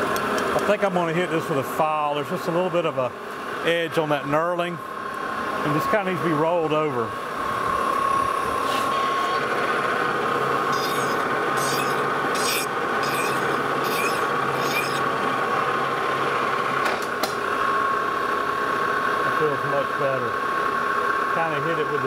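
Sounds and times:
lathe humming: 0:09.4 - 0:16.8
file rasping on metal: 0:10.7 - 0:15.1.

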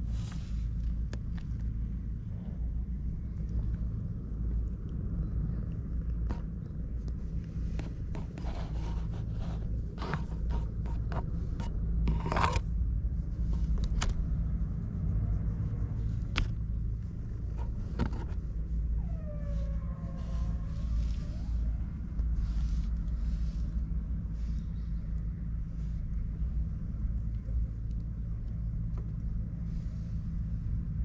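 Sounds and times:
hand stroking cat rustles: 0:00.0 - 0:01.9, 0:06.3 - 0:27.9
steady low rumble: 0:00.0 - 0:31.0.

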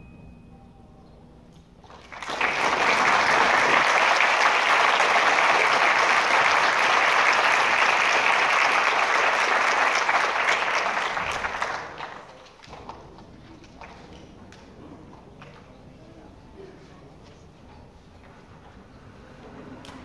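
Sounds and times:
audience applauding: 0:01.8 - 0:12.7.

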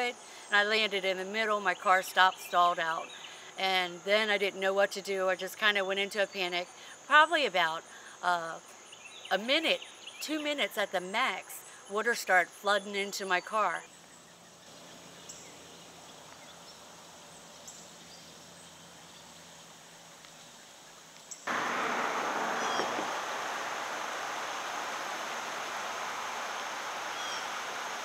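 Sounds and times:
high chirps: 0:21.5 - 0:28.0
rush of fast-flowing floodwater: 0:21.5 - 0:28.0.

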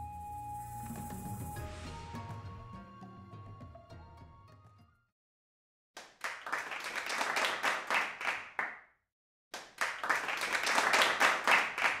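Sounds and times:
crowd applauding: 0:06.0 - 0:08.8, 0:09.6 - 0:12.0.

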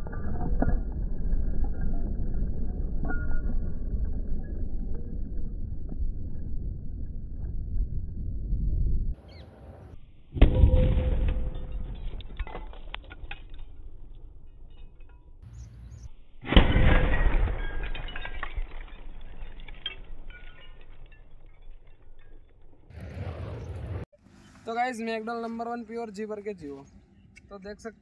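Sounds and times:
firecracker bang: 0:10.4 - 0:12.1, 0:16.4 - 0:18.0
shattered glass clinking: 0:16.6 - 0:22.9.

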